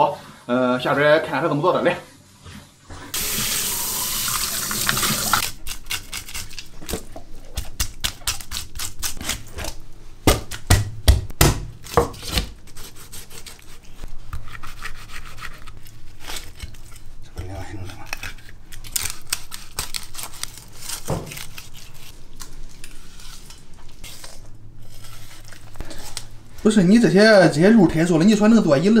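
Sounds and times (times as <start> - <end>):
water running: 0.8 - 5.4
cleaver scraping fish scales: 12.3 - 26.7.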